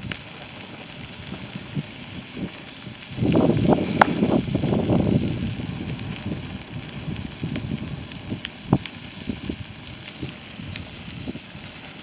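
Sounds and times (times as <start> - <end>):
fire crackling and popping: 0.0 - 12.0
fire rumbling: 0.0 - 12.0.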